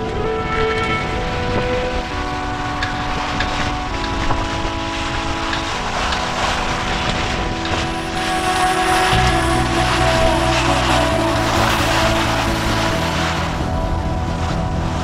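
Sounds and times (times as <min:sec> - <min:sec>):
wind buffeting microphone: 0:00.0 - 0:15.0
water rushing past hull: 0:03.2 - 0:15.0.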